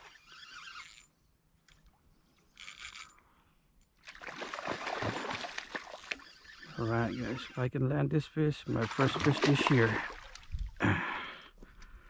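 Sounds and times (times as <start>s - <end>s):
fish splashing and thrashing in water: 4.0s - 6.7s, 8.8s - 10.8s.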